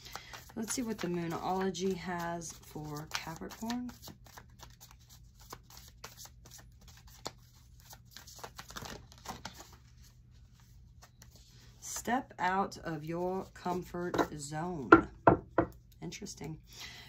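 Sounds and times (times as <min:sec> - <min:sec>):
cards being shuffled: 0:00.0 - 0:11.5.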